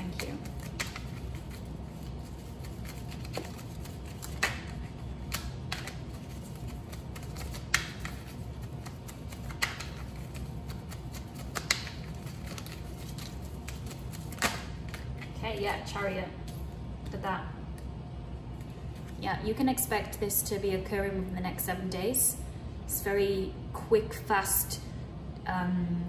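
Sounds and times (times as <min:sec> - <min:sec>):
cards shuffling rustle: 0:00.0 - 0:15.4
low steady hum: 0:00.0 - 0:26.0.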